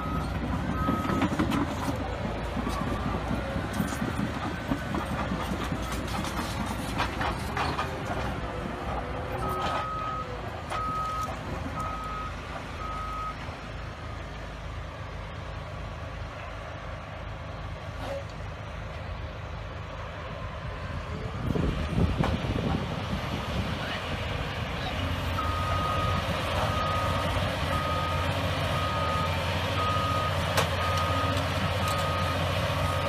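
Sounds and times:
reversing alarm beeps: 0.0s - 1.4s, 9.4s - 13.4s, 25.4s - 33.0s
bulldozer diesel engine running: 0.0s - 33.0s.

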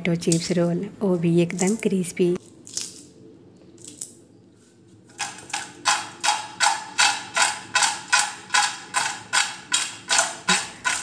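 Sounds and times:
chips rattling in metal bowl: 5.1s - 11.0s.

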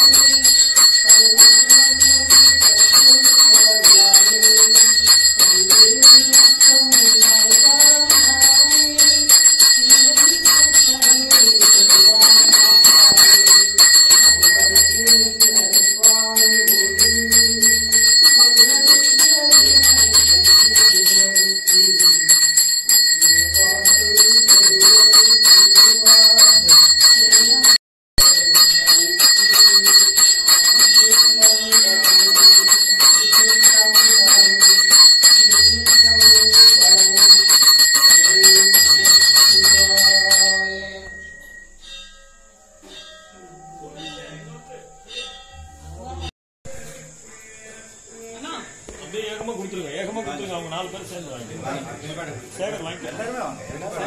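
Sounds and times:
hand bell ringing rapidly: 0.0s - 41.6s.

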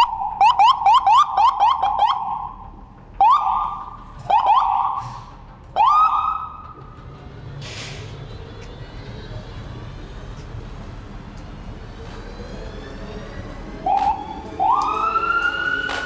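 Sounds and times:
fire engine siren: 0.0s - 6.8s, 11.9s - 16.0s.

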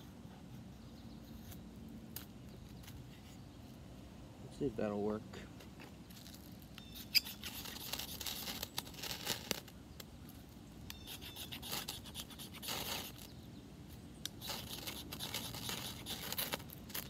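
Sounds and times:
knife scraping a ferrocerium rod: 6.8s - 9.7s, 10.9s - 13.3s, 14.2s - 17.0s.

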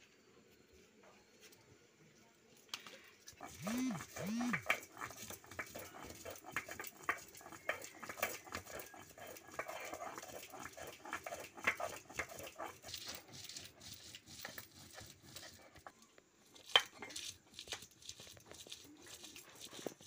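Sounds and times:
stone grinding scraping: 3.3s - 20.0s.

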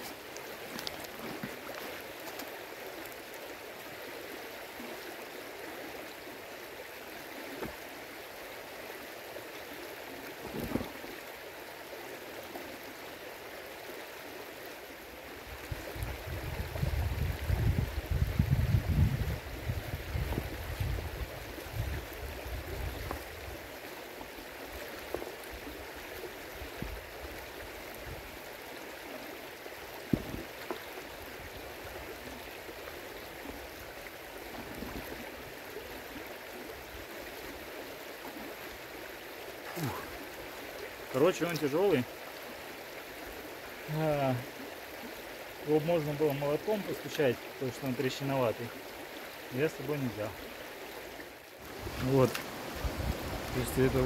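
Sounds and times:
river water rushing: 0.0s - 16.9s, 19.3s - 54.0s
low rumble on microphone: 15.7s - 23.2s.

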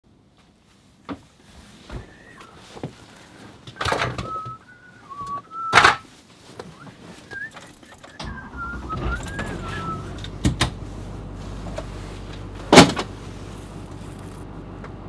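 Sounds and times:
person whistling a tune: 3.7s - 6.0s, 6.7s - 10.2s.

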